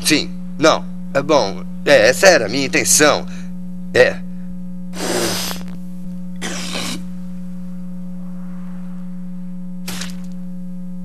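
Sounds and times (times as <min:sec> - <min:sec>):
low electrical hum: 0:00.0 - 0:11.0
man spitting: 0:04.9 - 0:05.8, 0:06.4 - 0:07.1
man clearing throat: 0:06.4 - 0:07.1.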